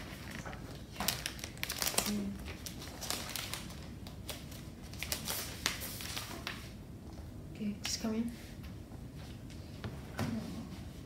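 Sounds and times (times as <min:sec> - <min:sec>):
plastic packaging crinkling and tearing: 0:00.0 - 0:06.7.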